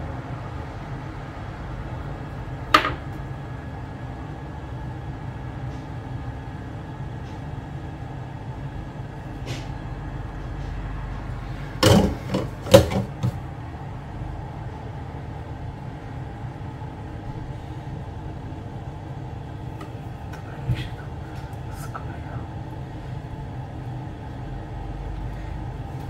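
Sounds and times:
steady low hum: 0.0 - 26.0
objects knocking on a workbench: 2.8 - 3.0, 11.8 - 13.4.

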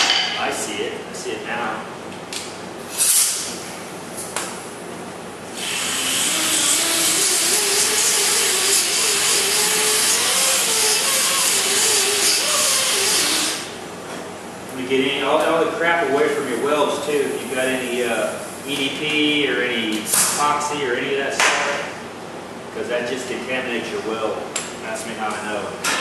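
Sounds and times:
air grinder whining: 5.5 - 13.8.

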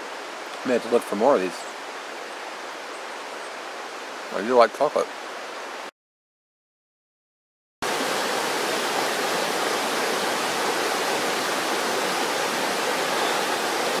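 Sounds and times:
river rushing over rapids: 7.8 - 14.0.

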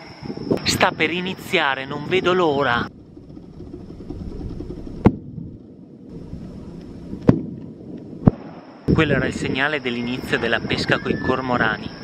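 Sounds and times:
low background rumble: 2.4 - 8.8.

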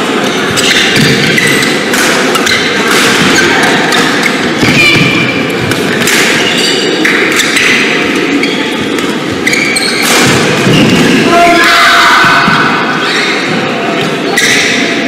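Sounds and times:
rackets hitting shuttlecock: 0.2 - 8.3, 8.9 - 11.2
shoes squeaking on court: 0.2 - 11.2, 13.0 - 15.0.

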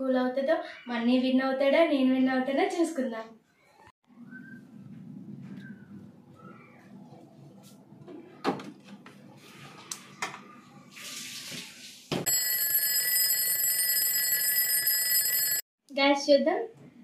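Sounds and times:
alarm clock bell ringing: 12.3 - 15.6.

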